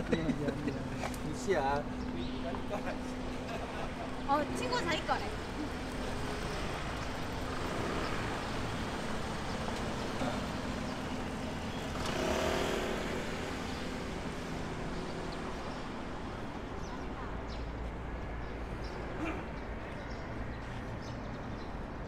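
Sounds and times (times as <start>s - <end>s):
road traffic noise: 0.0s - 22.0s.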